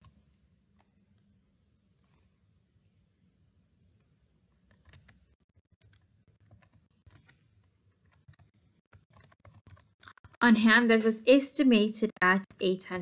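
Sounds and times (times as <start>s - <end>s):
computer keyboard typing and clicking: 4.5s - 11.1s, 11.8s - 13.0s.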